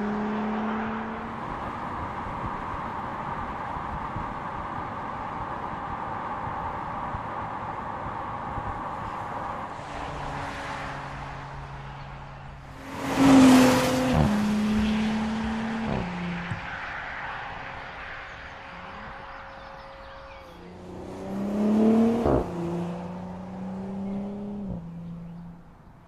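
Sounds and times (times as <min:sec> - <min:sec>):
car engine driving past: 0:09.1 - 0:25.8.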